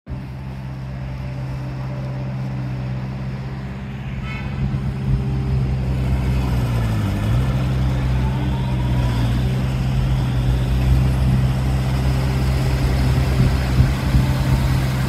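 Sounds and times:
boat engine running: 0:00.1 - 0:15.0.

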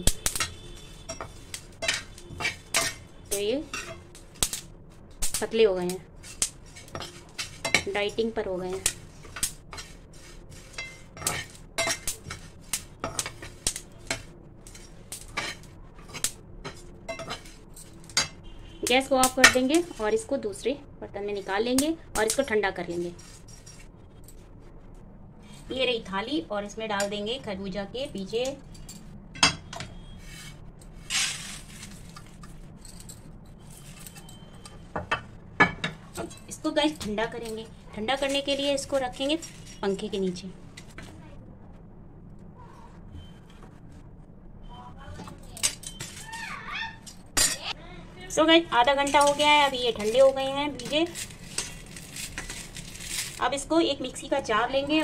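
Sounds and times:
metal spoon scraping a pan: 0:00.0 - 0:04.7, 0:05.4 - 0:20.5, 0:21.7 - 0:24.4, 0:28.0 - 0:32.6, 0:35.6 - 0:40.2, 0:45.3 - 0:46.3, 0:48.8 - 0:55.0
seeds sliding onto steel: 0:08.7 - 0:16.4, 0:30.2 - 0:32.3.

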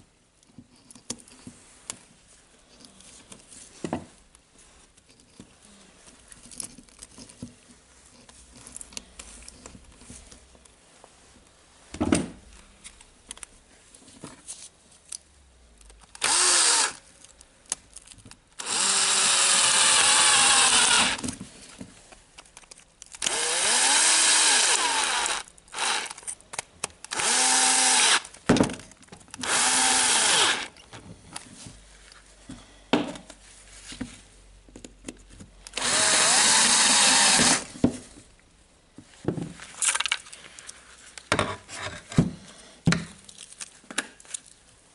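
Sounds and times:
cordless drill motor whirring: 0:16.2 - 0:17.0, 0:18.6 - 0:21.2, 0:23.2 - 0:26.2, 0:27.1 - 0:28.3, 0:29.4 - 0:30.8, 0:35.7 - 0:37.7
metal parts clicking: 0:24.8 - 0:28.4, 0:39.8 - 0:40.8.

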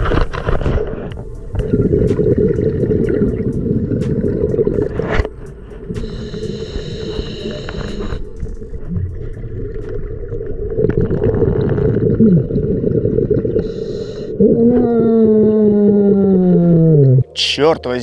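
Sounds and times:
deep underwater rumble: 0:00.0 - 0:18.0
whale-like moaning glides: 0:13.6 - 0:17.3
low tone sliding downward: 0:14.4 - 0:17.4.

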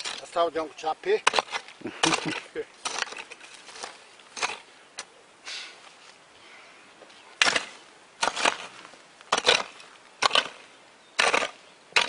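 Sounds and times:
hoe blade chopping soil: 0:01.1 - 0:04.7, 0:07.4 - 0:12.0.

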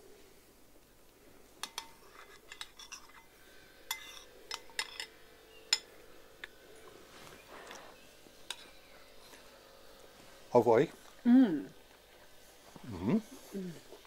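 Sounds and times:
metal spoons clinking against bowls: 0:01.6 - 0:06.0.

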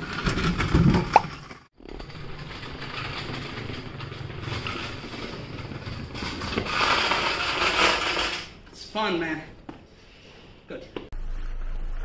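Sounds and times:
wheels and motor rumbling: 0:00.0 - 0:08.8.

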